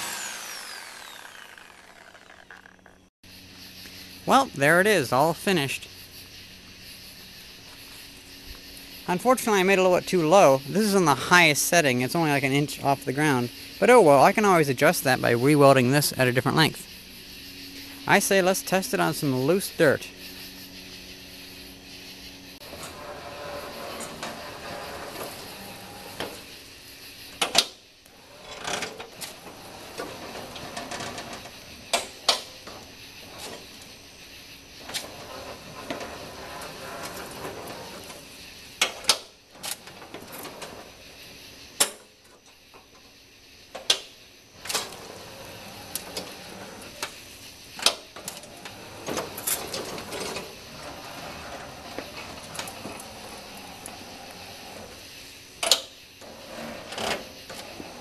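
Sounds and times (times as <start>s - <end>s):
blade pushing loose dirt: 0.0s - 2.9s
electric lawn tractor whirring: 0.0s - 3.1s.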